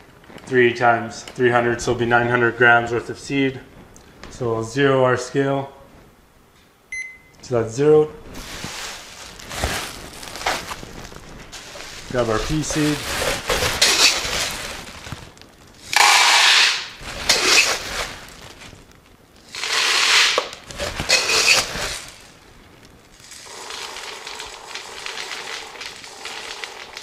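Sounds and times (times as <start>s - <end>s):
scooping and shuffling: 8.2s - 27.0s
dried peas pouring and rattling: 8.3s - 27.0s.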